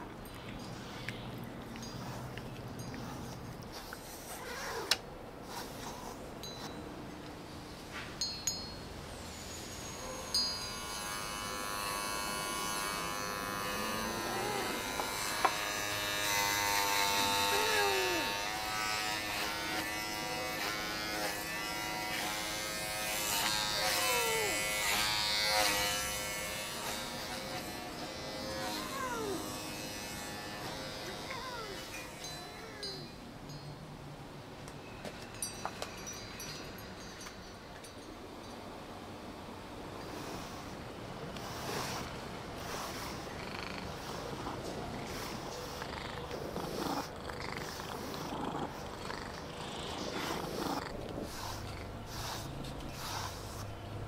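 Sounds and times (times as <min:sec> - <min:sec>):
electric trimmer buzzing: 0:10.6 - 0:32.7
brush swishing through fur: 0:41.4 - 0:43.3, 0:51.2 - 0:53.8
cat purring: 0:41.4 - 0:53.7.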